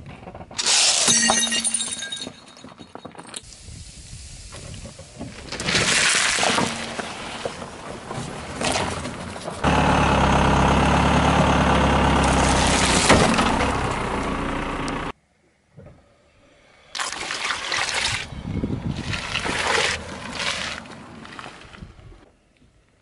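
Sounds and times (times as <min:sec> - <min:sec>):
car engine running: 0:09.6 - 0:15.1
sharp crunch: 0:12.2 - 0:13.9.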